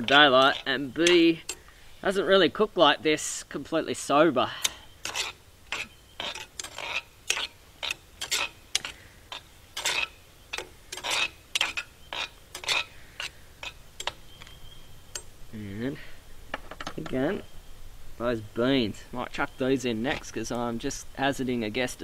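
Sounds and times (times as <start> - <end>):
spoon scraping a pan: 0.0 - 2.2, 4.5 - 14.4.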